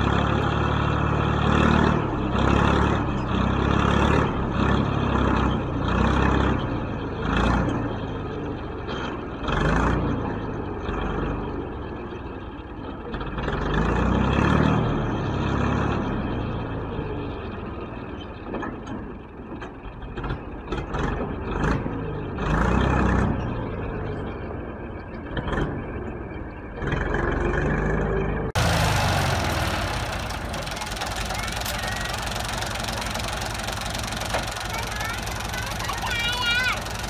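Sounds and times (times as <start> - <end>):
tractor engine revving: 0.0 - 6.6, 26.9 - 37.0
sand dumping from trailer: 28.6 - 36.1.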